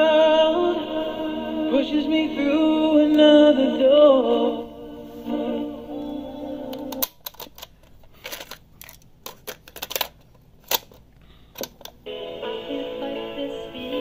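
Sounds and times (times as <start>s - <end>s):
music from small speaker: 0.0s - 7.0s, 12.0s - 14.0s
cassette recorder keys clicking: 6.7s - 12.0s.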